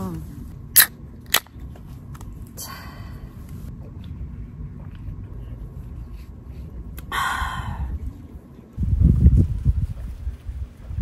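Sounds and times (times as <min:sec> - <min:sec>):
wind rumbling against microphone: 0:02.2 - 0:11.0.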